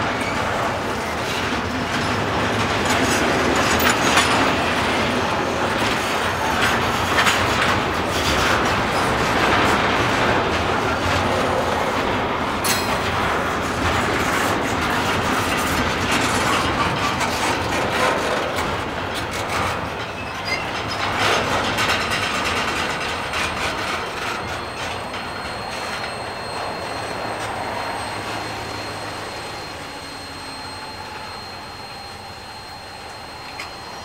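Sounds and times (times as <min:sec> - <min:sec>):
train wheels clacking over rails: 0:00.0 - 0:34.0
sharp metal clanks: 0:12.6 - 0:13.1.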